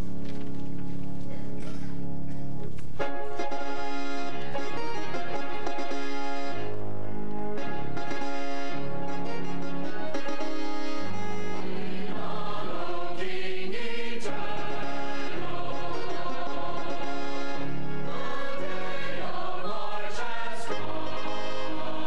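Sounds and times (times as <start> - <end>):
church choir singing: 3.4 - 6.7, 10.7 - 22.0.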